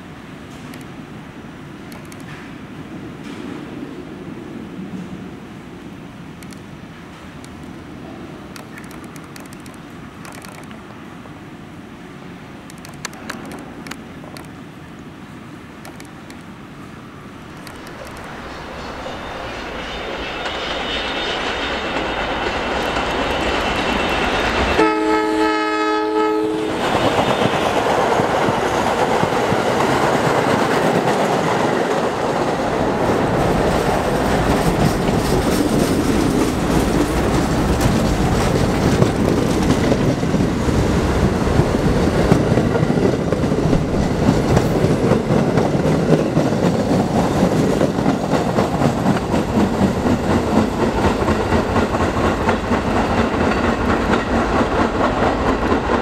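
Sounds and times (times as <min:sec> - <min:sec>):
train wheels clattering on rails: 0:00.4 - 0:01.0, 0:01.8 - 0:04.0, 0:08.4 - 0:10.9, 0:17.4 - 0:25.8, 0:26.7 - 0:56.0
train horn: 0:24.7 - 0:27.0.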